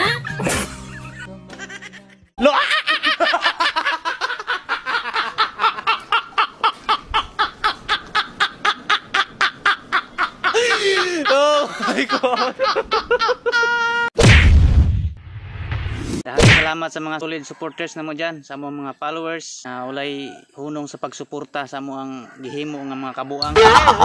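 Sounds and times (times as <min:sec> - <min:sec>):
music: 0:00.0 - 0:02.3
person laughing heartily: 0:00.0 - 0:14.1, 0:23.4 - 0:24.0.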